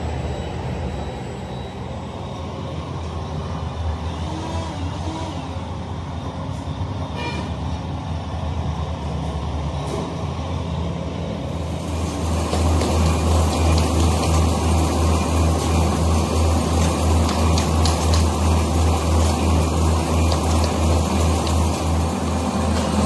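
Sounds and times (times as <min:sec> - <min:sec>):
heavy machinery humming: 0:00.0 - 0:23.0.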